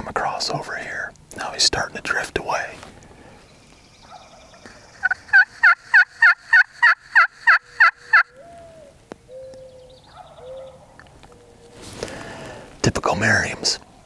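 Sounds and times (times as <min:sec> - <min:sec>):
distant turkey gobble: 0:04.0 - 0:11.8
turkey call hen yelps: 0:04.1 - 0:11.6.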